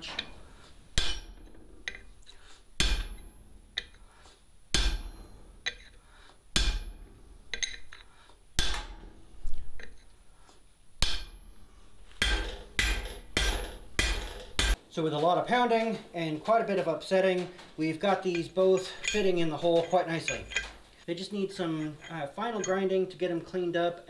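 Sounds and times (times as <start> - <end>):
hammer striking metal punch: 1.0 - 2.1, 2.8 - 4.0, 4.7 - 5.9, 6.6 - 7.8, 8.6 - 9.2, 11.0 - 14.8.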